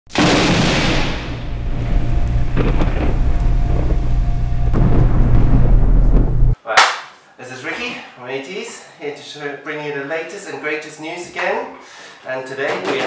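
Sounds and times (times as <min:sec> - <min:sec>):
loud blast: 0:00.1 - 0:06.6
deep thunder-like rumble: 0:00.2 - 0:06.6.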